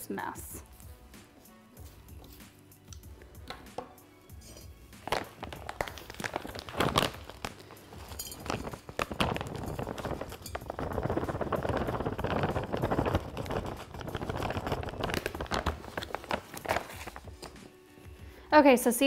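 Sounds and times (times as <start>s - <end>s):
soft background music: 0.0s - 19.0s
plastic bag crinkling: 5.0s - 17.6s.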